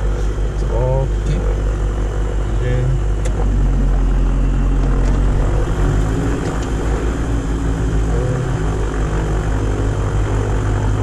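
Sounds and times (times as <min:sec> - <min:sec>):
aircraft engine and propeller idling: 0:00.0 - 0:11.0.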